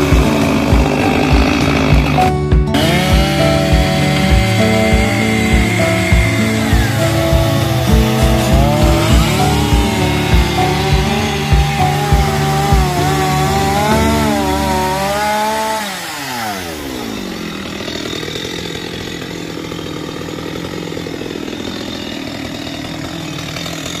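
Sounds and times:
low thumps: 0.0s - 15.7s
chainsaw engine revving and idling: 0.0s - 24.0s.

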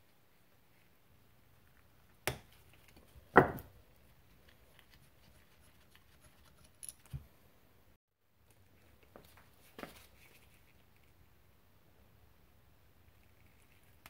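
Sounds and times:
tools knocking on wooden bench: 3.4s - 3.7s.

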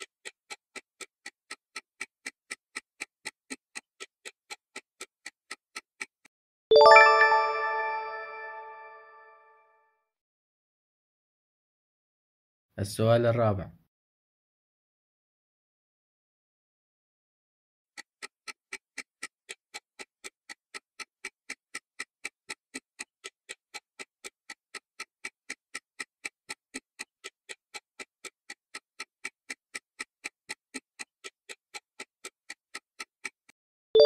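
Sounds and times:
clock-like timer ticks: 0.0s - 6.3s, 17.9s - 33.6s.

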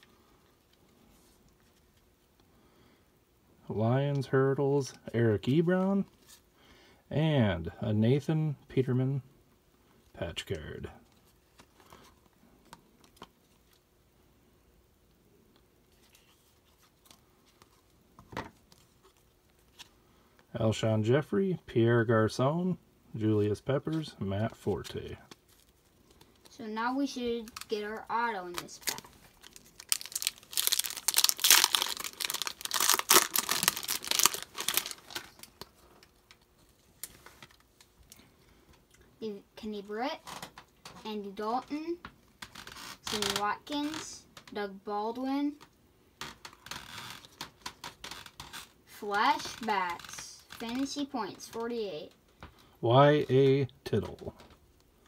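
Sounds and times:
foil wrapper crackling: 27.4s - 37.7s
cards rustling and clicking: 27.4s - 37.9s.

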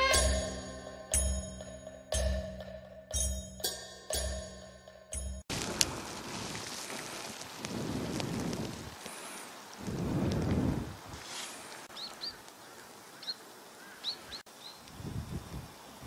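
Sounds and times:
small birds chirping: 11.2s - 16.0s.

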